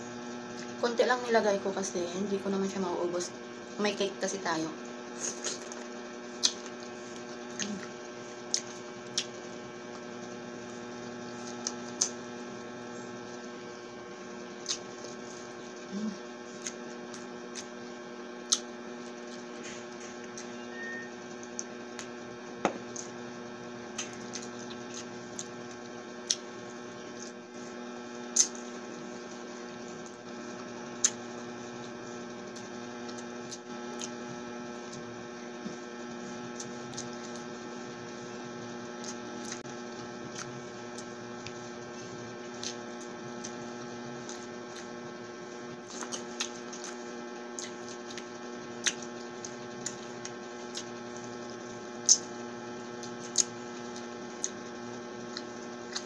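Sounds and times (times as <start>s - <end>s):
steady electrical hum: 0.0s - 56.0s
chewing clicks and smacks: 5.2s - 6.9s, 8.5s - 10.0s, 11.4s - 12.2s, 14.6s - 15.1s, 16.5s - 17.8s, 18.4s - 20.5s, 23.9s - 26.5s, 31.0s - 31.2s, 32.5s - 34.2s, 39.0s - 41.6s, 42.5s - 44.9s, 45.8s - 51.4s, 52.0s - 52.3s, 53.0s - 54.6s, 55.2s - 56.0s.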